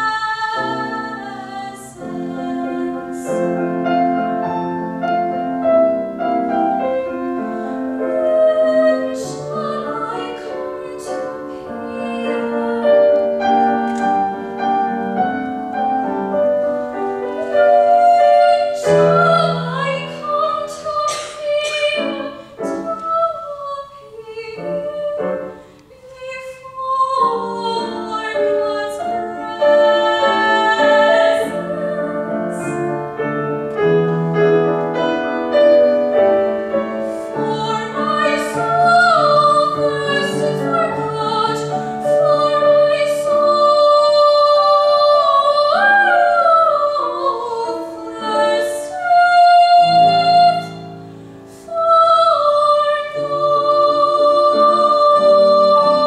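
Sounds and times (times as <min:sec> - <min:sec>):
girl singing operatic song: 0:00.0 - 0:03.6, 0:07.9 - 0:14.0, 0:17.3 - 0:32.8, 0:37.0 - 0:56.0
piano accompaniment: 0:00.0 - 0:56.0.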